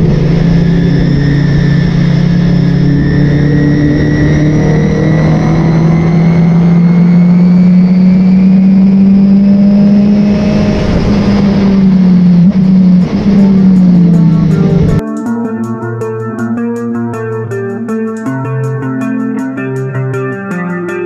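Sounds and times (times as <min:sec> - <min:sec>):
race car engine at full throttle: 0:00.0 - 0:15.0.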